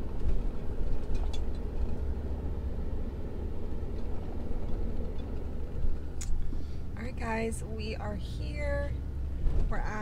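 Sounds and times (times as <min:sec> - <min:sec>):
vehicle engine and road rumble: 0:00.0 - 0:10.0.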